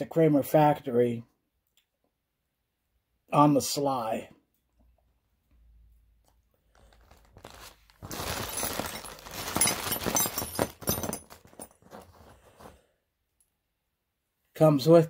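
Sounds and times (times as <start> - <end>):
plastic bag crinkling: 6.7 - 12.3.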